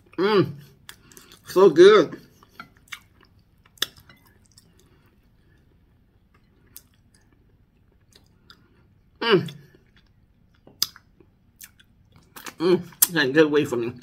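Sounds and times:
close-up chewing: 2.2s - 13.1s.

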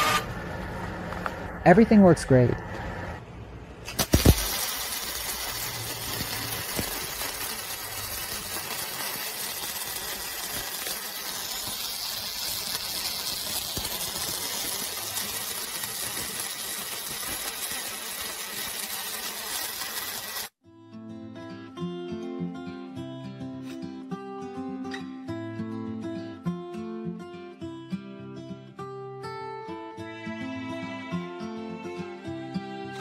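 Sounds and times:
welding arc sizzling hiss: 3.9s - 20.6s.

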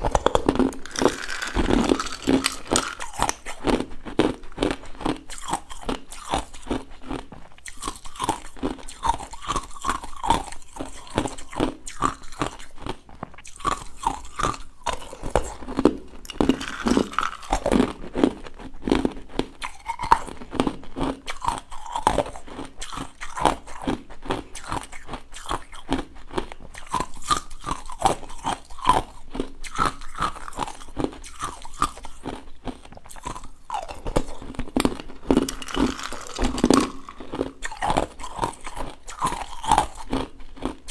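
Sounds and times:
crunching and chewing ice: 0.0s - 40.9s.

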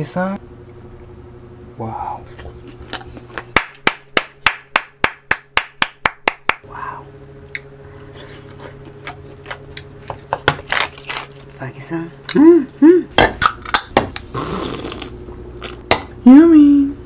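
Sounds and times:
wet chewing: 2.2s - 3.5s.

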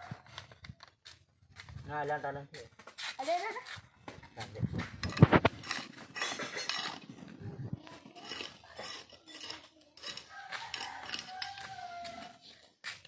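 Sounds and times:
trowel scraping stony soil: 4.8s - 12.5s.

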